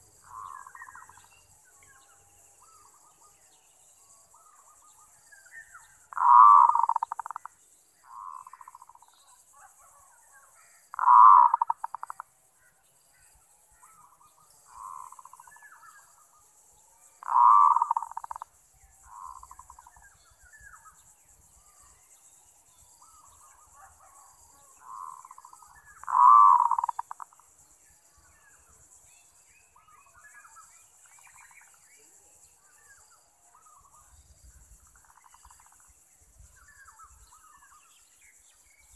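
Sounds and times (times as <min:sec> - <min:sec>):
dove cooing: 0:06.2 - 0:07.4, 0:11.0 - 0:12.1, 0:17.2 - 0:18.4, 0:26.0 - 0:27.3.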